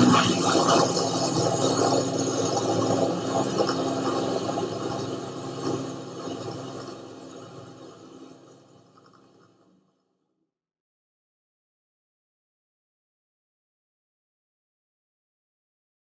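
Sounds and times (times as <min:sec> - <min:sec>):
aircraft piston engines droning: 0:00.0 - 0:09.2.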